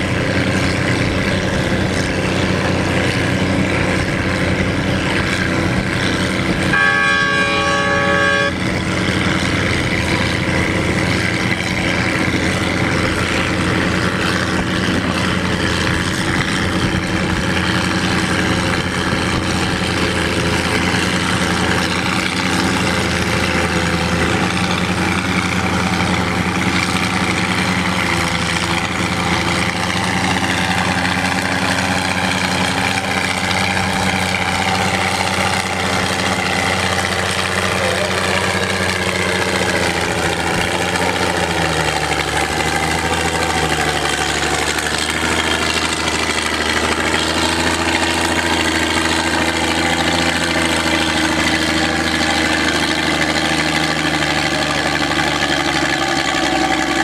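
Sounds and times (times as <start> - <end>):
tractor engine idling: 0.0 - 57.0.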